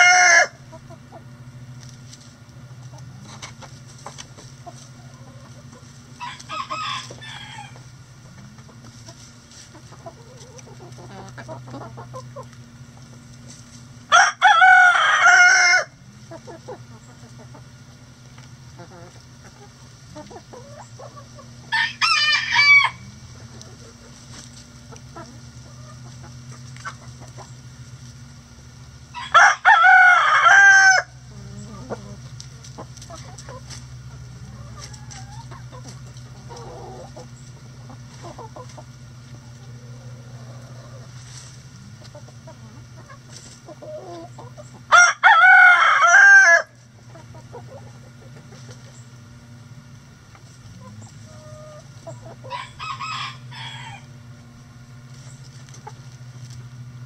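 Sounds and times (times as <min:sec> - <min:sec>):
rooster crowing: 0:00.0 - 0:00.6, 0:06.2 - 0:07.8, 0:14.1 - 0:16.0, 0:21.7 - 0:23.1, 0:29.1 - 0:31.2, 0:44.9 - 0:46.8, 0:52.4 - 0:54.2
hen clucking: 0:00.0 - 0:56.6
low steady hum: 0:00.0 - 0:57.0.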